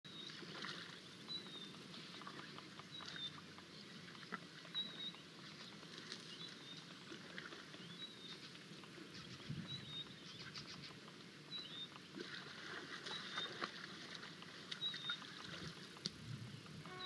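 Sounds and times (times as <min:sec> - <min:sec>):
faint ticks and crackles: 0:00.1 - 0:17.0
bird high chirp: 0:09.6 - 0:10.6, 0:11.5 - 0:11.9, 0:14.8 - 0:15.3.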